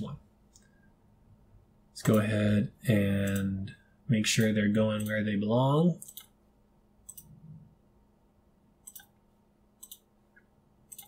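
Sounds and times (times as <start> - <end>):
computer mouse clicking: 6.0 - 6.4, 7.0 - 7.4, 8.8 - 9.2, 9.8 - 11.0.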